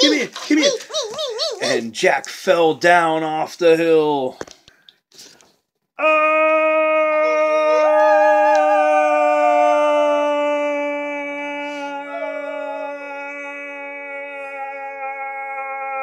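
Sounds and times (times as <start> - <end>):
person wailing: 0.0 - 1.9, 6.0 - 16.0.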